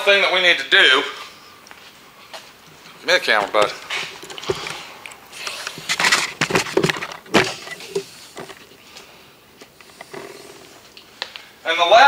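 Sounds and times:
handling noise on camera: 0:01.8 - 0:11.4.

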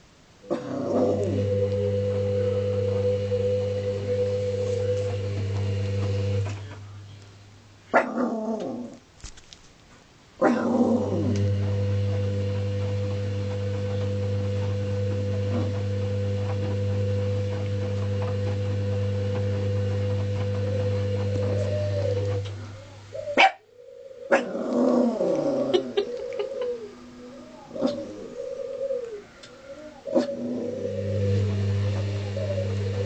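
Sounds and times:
washing machine humming: 0:00.0 - 0:07.1, 0:10.4 - 0:23.6, 0:29.7 - 0:33.0.

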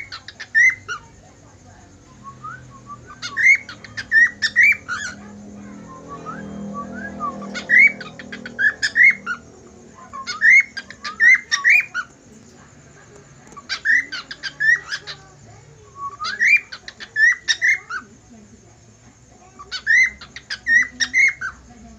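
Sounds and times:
cockatiel whistling: 0:02.2 - 0:09.4, 0:10.1 - 0:12.1, 0:16.0 - 0:18.0.

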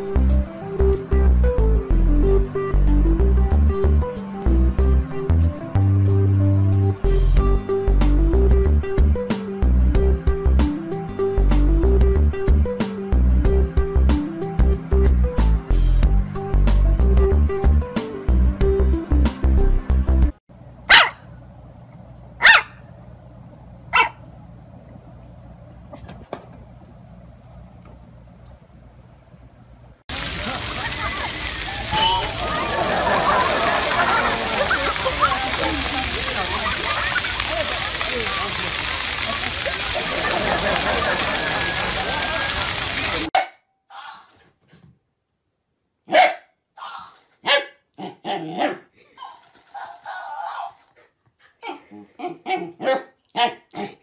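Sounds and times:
puppy barking: 0:20.9 - 0:21.3, 0:22.4 - 0:22.9, 0:23.9 - 0:24.2, 0:46.1 - 0:50.8, 0:51.6 - 0:54.0.

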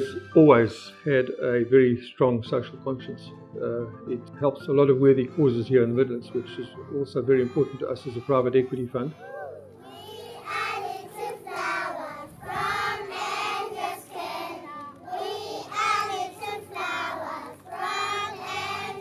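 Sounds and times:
children singing in unison: 0:09.8 - 0:19.0.

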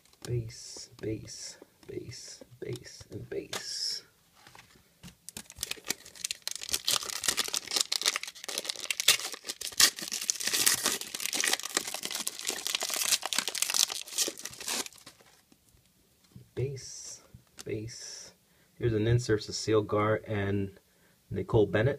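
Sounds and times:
card pack wrapper tearing and crinkling: 0:05.3 - 0:15.4.

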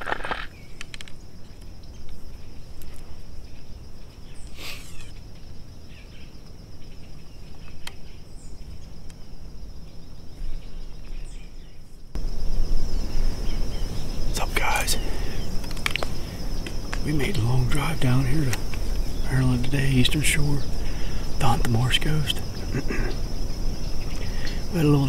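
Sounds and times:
clicks and rustles of gear: 0:00.0 - 0:01.2, 0:15.6 - 0:17.0
insects trilling: 0:00.0 - 0:25.0.

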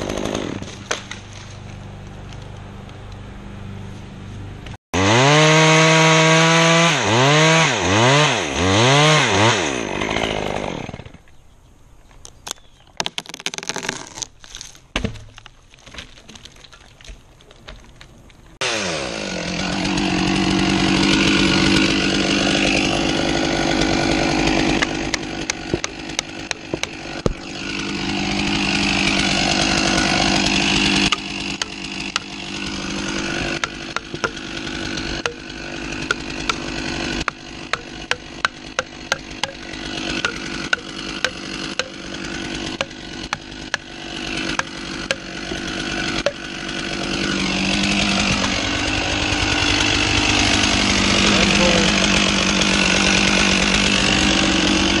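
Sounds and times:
chainsaw cutting: 0:00.0 - 0:03.8, 0:05.0 - 0:11.2, 0:18.6 - 0:55.0
sharp knocks: 0:33.6 - 0:34.5.

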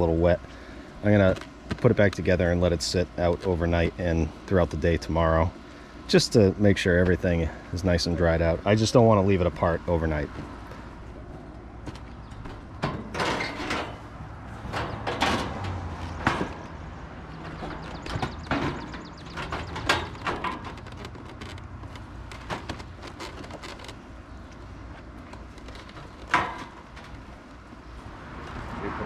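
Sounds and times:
casing panels being handled: 0:10.3 - 0:27.6.

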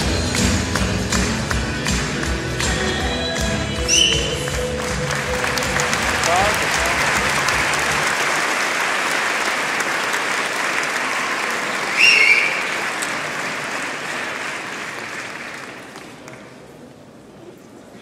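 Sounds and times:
audience applauding: 0:00.0 - 0:16.8
high whistle: 0:03.9 - 0:04.5, 0:11.9 - 0:12.8.

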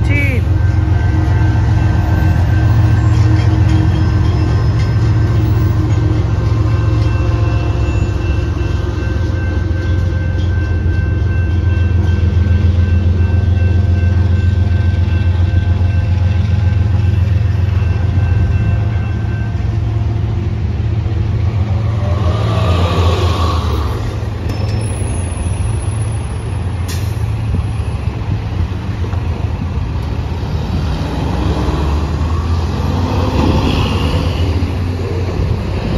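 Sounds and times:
crossing bell ringing: 0:00.0 - 0:20.6, 0:24.0 - 0:26.8
diesel locomotives rumbling: 0:00.0 - 0:35.9.

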